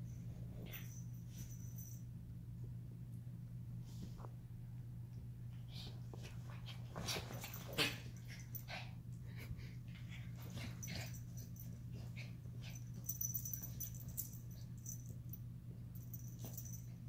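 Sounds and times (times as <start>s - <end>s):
steady low hum: 0.0s - 17.0s
bedding rustling: 6.2s - 8.5s.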